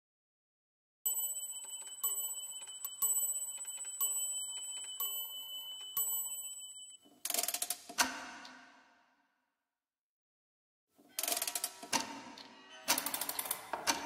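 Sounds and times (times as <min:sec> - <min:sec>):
thin ringing tone: 0:01.1 - 0:07.1
clockwork rattling: 0:01.1 - 0:08.1, 0:11.2 - 0:12.1, 0:12.9 - 0:14.0
clock striking: 0:01.1 - 0:08.8, 0:11.2 - 0:14.0
clock ticking: 0:01.1 - 0:08.9, 0:11.2 - 0:14.0.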